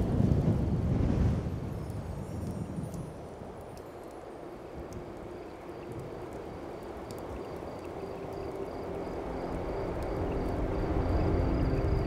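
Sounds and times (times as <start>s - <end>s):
sustained music tones: 7.2s - 12.0s.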